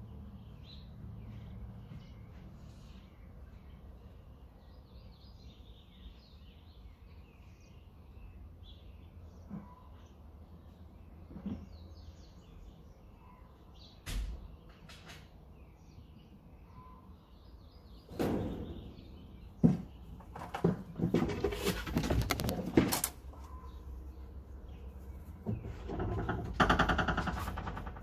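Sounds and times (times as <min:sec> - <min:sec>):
small birds chirping: 0:00.0 - 0:28.0
knocks: 0:19.6 - 0:23.0, 0:25.4 - 0:28.0
clatter of rapid knocks and rattles: 0:19.6 - 0:23.1, 0:25.4 - 0:28.0.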